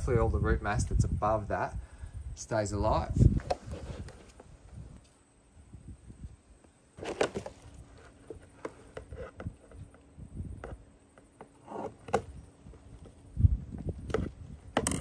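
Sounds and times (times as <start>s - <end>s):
plants rustling: 7.0s - 9.9s.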